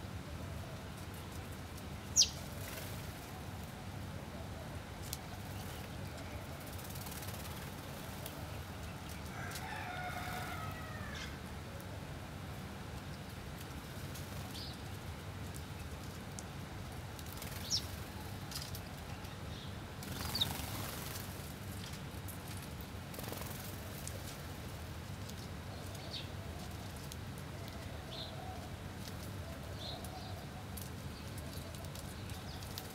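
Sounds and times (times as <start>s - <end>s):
low background noise: 0.0s - 32.9s
sparrows chirping: 2.0s - 2.9s, 17.2s - 22.0s, 25.3s - 32.9s
rooster crowing: 9.3s - 11.4s.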